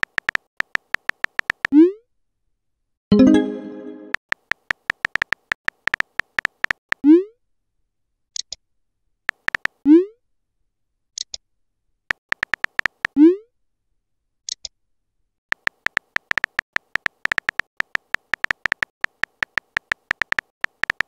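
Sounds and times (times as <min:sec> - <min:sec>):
keyboard tap clicks: 0:12.3 - 0:13.1, 0:15.5 - 0:21.0.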